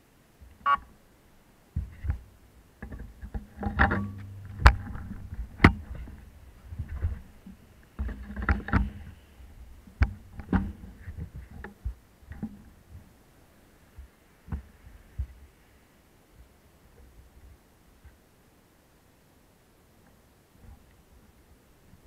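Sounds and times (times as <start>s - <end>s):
sharp knocks and clicks: 2.8s - 9.2s, 9.9s - 12.6s.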